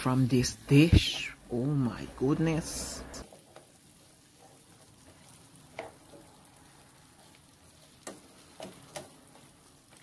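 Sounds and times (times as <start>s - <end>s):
faint sizzle: 0.0s - 10.0s
spatula scraping a frying pan: 3.2s - 10.0s.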